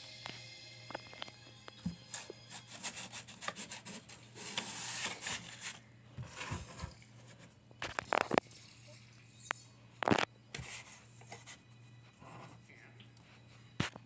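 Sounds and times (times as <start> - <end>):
scratchy handling noise: 1.9 - 8.4.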